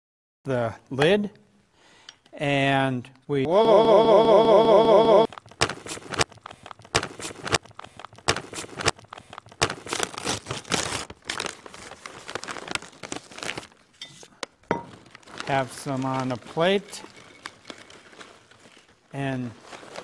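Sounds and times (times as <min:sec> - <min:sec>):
warbling electronic tone: 0:03.5 - 0:05.3
plastic bag crinkling: 0:05.3 - 0:20.0.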